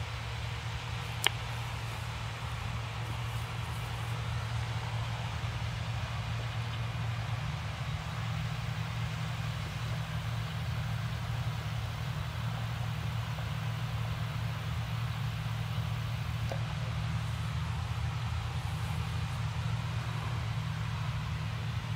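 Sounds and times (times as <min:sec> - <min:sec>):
combine harvester droning: 0:00.0 - 0:21.9.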